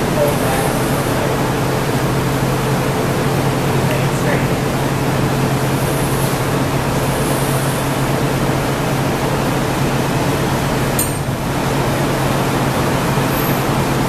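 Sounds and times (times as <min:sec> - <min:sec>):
furnace and fans rushing: 0:00.0 - 0:14.0.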